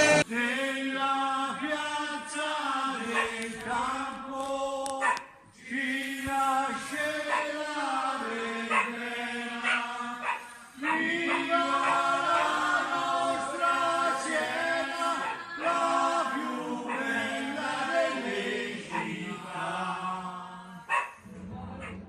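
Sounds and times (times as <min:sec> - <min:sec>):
people singing in unison: 0:00.0 - 0:22.0.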